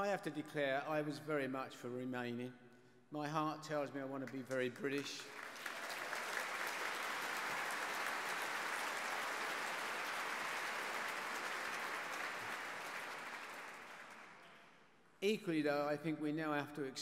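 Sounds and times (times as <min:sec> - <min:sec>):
audience applauding: 0:05.0 - 0:14.4.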